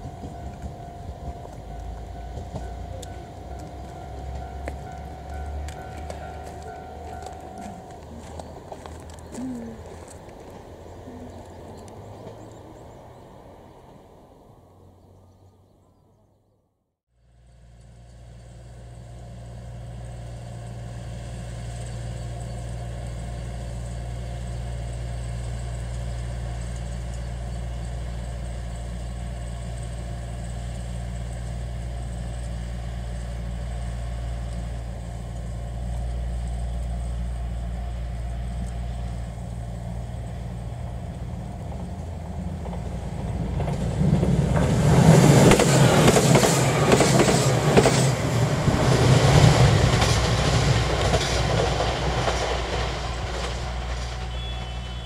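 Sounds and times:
train rushing past at speed: 0:00.0 - 0:15.0, 0:34.1 - 0:55.0
train diesel engines droning: 0:00.0 - 0:16.2, 0:17.2 - 0:55.0.

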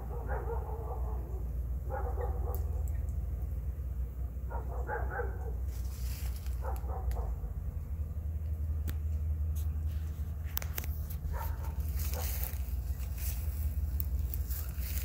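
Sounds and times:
dog barking: 0:00.0 - 0:02.9, 0:04.5 - 0:05.6, 0:06.6 - 0:07.5, 0:11.3 - 0:12.6
steady low rumble: 0:00.0 - 0:15.0.

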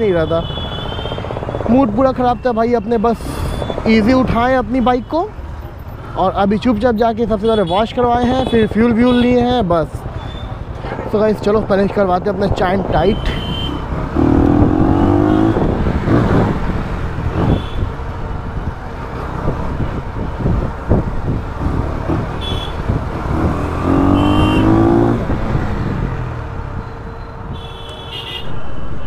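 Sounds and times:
road traffic noise: 0:00.0 - 0:29.0
motorcycle engine revving: 0:13.4 - 0:18.0, 0:19.0 - 0:26.7.

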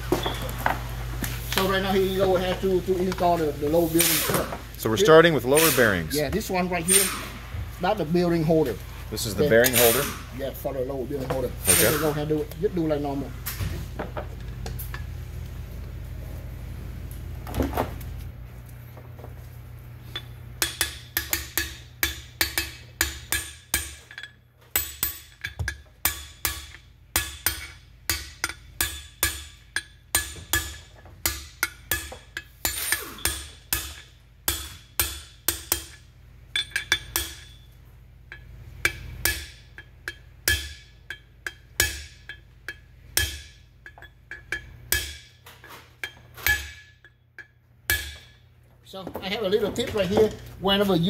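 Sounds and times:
hammer tapping metal with ping: 0:38.3 - 0:45.4, 0:46.0 - 0:48.4.

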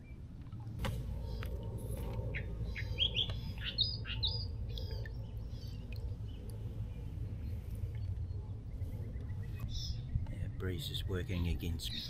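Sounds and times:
low steady rumble: 0:00.0 - 0:12.0
small bird chirping: 0:02.3 - 0:06.4.

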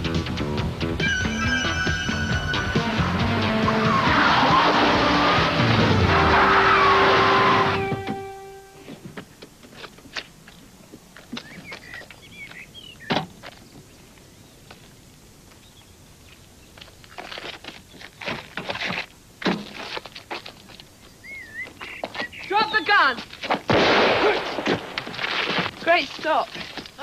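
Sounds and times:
footsteps and scuffling: 0:07.3 - 0:15.6, 0:16.2 - 0:23.7, 0:24.5 - 0:27.0.

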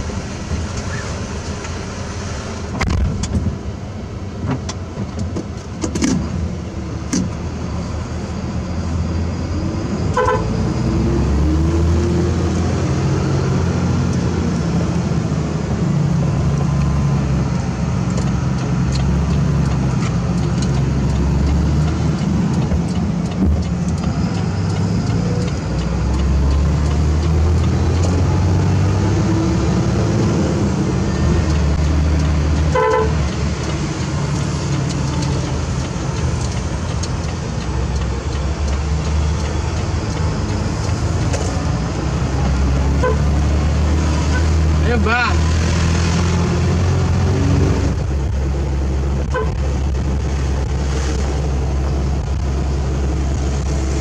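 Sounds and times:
diesel truck engine running: 0:00.0 - 0:54.0
horn toot: 0:10.2 - 0:10.5, 0:32.7 - 0:33.2, 0:43.0 - 0:43.3.

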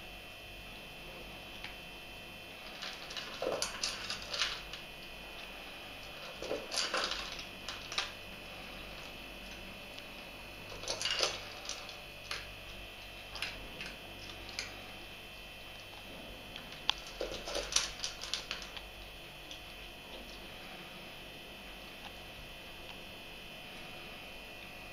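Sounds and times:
cat crunching dry kibble: 0:02.6 - 0:14.9, 0:15.7 - 0:20.5.

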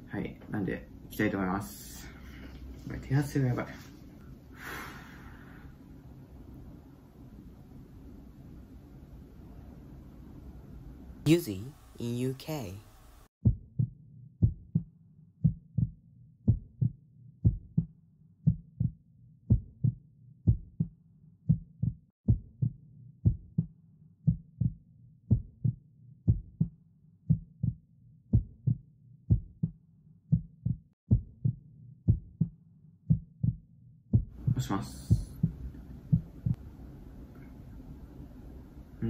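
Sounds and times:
heartbeat thumps: 0:13.4 - 0:20.9, 0:21.5 - 0:23.7, 0:24.3 - 0:36.6.

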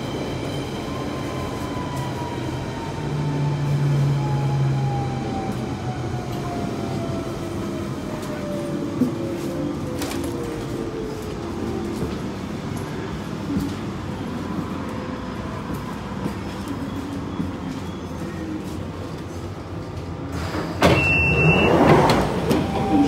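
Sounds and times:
train doors opening rush: 0:00.0 - 0:23.0
train rumbling: 0:00.0 - 0:23.0
high beep: 0:20.9 - 0:21.9.

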